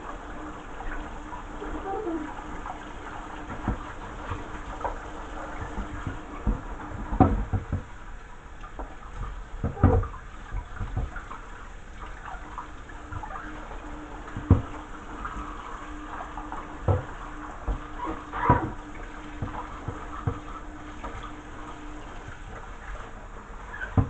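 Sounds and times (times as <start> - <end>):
scrubbing and splashing: 0.0 - 24.0
tap running into sink: 1.6 - 24.0
plastic knocking against sink: 3.4 - 8.0, 8.7 - 11.3, 14.3 - 14.8, 16.8 - 21.3, 23.8 - 24.0.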